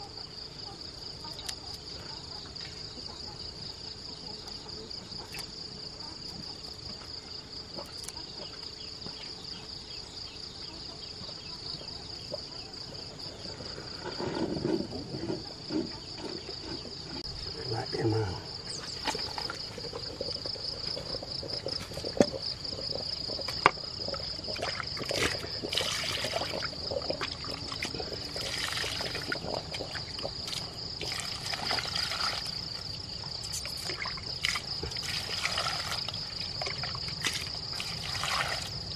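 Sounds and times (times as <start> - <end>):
insects chirring: 0.0 - 38.9
water splashing and trickling: 16.3 - 38.9.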